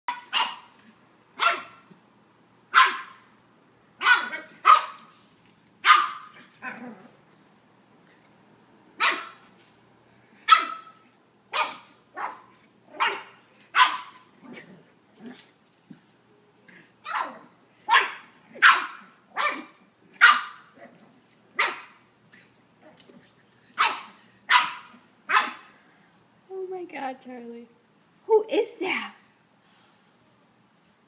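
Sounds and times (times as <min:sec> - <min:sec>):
puppy barking: 0:00.1 - 0:00.7, 0:01.4 - 0:01.8, 0:02.7 - 0:03.2, 0:04.0 - 0:05.1, 0:05.8 - 0:06.8, 0:09.0 - 0:09.4, 0:10.4 - 0:14.3, 0:17.0 - 0:20.8, 0:21.6 - 0:22.0, 0:23.8 - 0:25.7.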